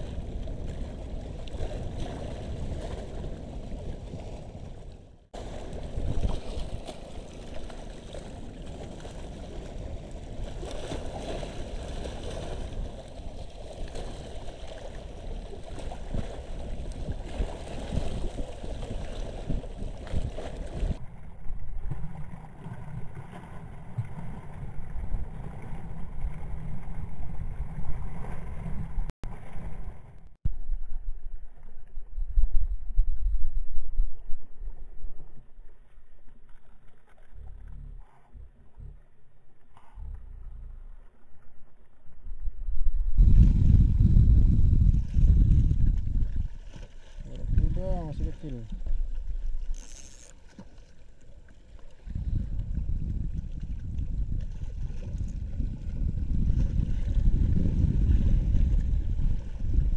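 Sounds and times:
wind on microphone: 0.0s - 7.8s, 8.4s - 22.3s, 42.2s - 50.3s, 52.0s - 59.9s
sea water lapping: 0.0s - 30.3s, 43.2s - 59.9s.

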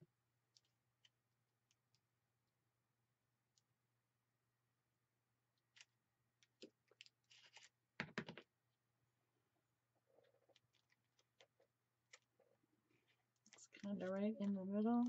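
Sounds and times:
paper rustling: 6.8s - 7.8s
taps on paper: 8.0s - 8.4s.

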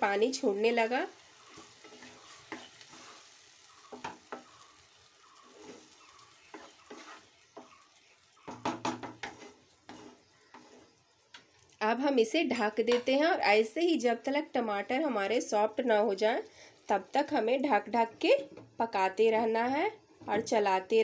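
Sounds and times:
tomatoes sizzling softly: 0.0s - 21.0s
wooden spatula scraping pan: 0.8s - 4.6s, 5.3s - 11.1s.

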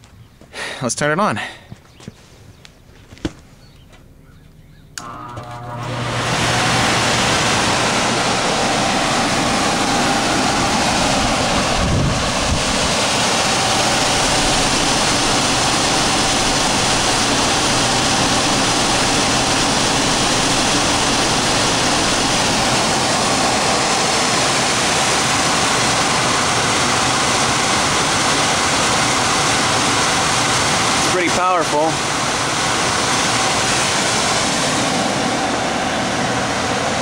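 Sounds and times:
blower fan rush of air: 0.0s - 37.0s.

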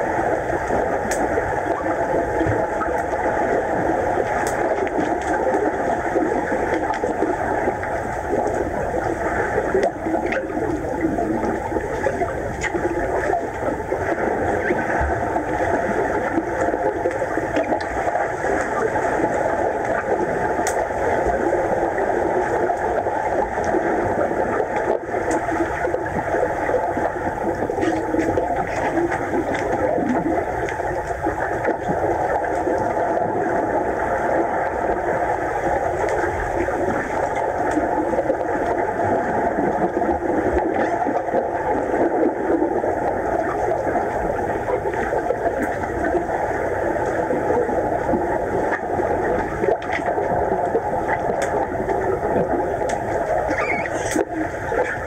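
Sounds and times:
muffled underwater pool noise: 0.0s - 55.0s
faint clicks: 0.7s - 1.3s, 52.8s - 55.0s.

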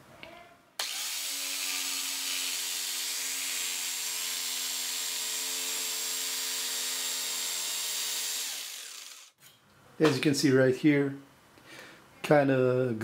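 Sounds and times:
jigsaw cutting wood: 0.8s - 9.4s.

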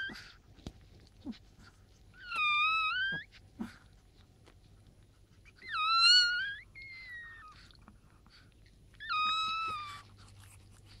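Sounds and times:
puppies squealing: 0.0s - 0.4s, 2.1s - 3.8s, 5.4s - 7.8s, 8.9s - 10.2s.

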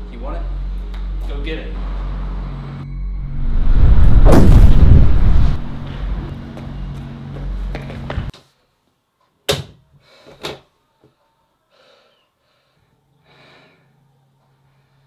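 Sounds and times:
low booming drone: 2.9s - 7.0s.

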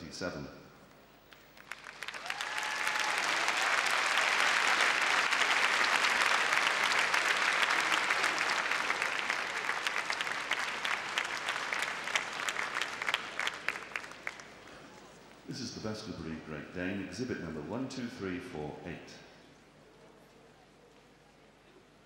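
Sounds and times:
audience applauding: 1.3s - 15.2s.

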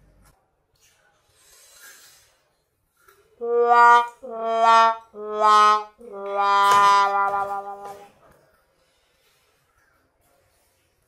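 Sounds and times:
wind instrument long notes: 3.4s - 8.1s.

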